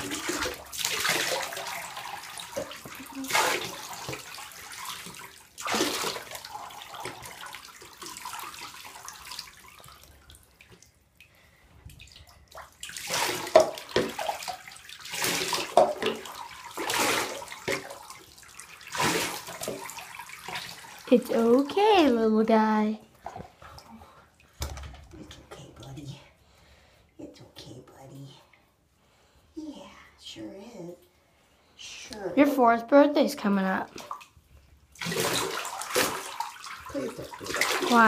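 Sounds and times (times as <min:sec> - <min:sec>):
water pouring and splashing: 0:00.0 - 0:25.4, 0:33.8 - 0:38.0.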